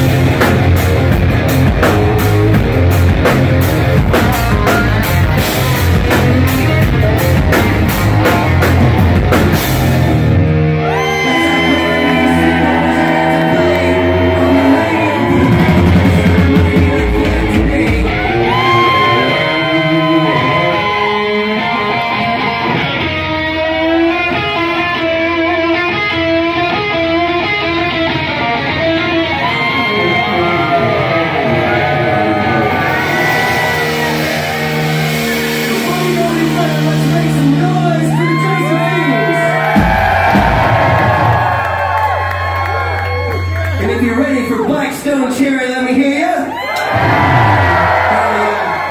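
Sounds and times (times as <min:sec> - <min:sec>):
drums and cymbals pounding: 0:00.0 - 0:22.4, 0:29.5 - 0:44.1, 0:46.6 - 0:48.9
overdriven electric guitar: 0:00.0 - 0:44.0
bass guitar: 0:00.0 - 0:48.9.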